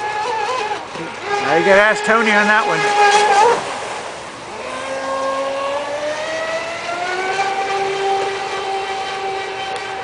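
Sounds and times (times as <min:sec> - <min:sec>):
electric boat motor whine: 0:00.0 - 0:10.0.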